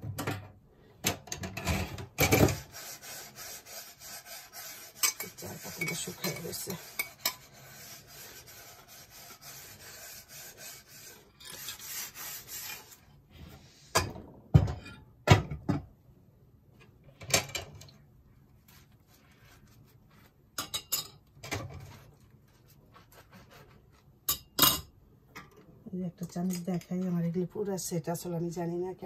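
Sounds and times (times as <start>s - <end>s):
dishes knocking and clattering: 0.0s - 2.7s, 13.9s - 16.0s, 17.2s - 18.0s, 20.6s - 21.9s
sponge scrubbing dishes: 1.9s - 13.9s.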